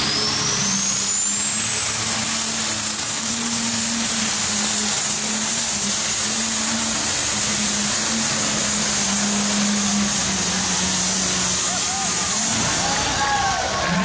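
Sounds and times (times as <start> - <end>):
high steady whistle: 0.0 - 7.0
tractor engine running flat out: 0.0 - 14.0.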